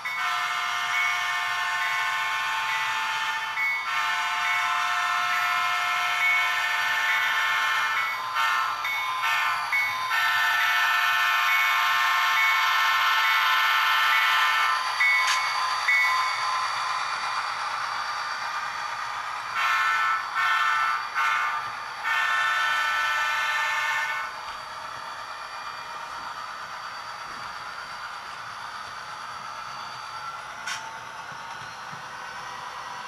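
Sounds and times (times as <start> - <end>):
model train horn blasts: 0.1 - 14.7, 19.6 - 24.3.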